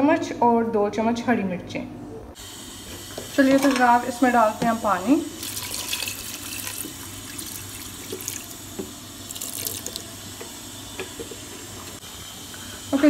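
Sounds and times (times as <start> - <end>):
water pouring into metal pot: 5.4 - 10.1.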